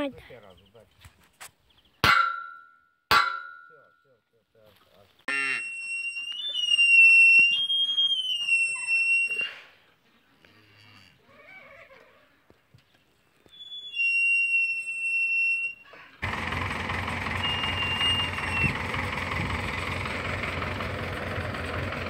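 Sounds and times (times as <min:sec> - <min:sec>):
metal pipe clangs: 0:02.0 - 0:04.0
high steady squeal: 0:05.5 - 0:09.6, 0:13.4 - 0:15.9, 0:17.3 - 0:19.5.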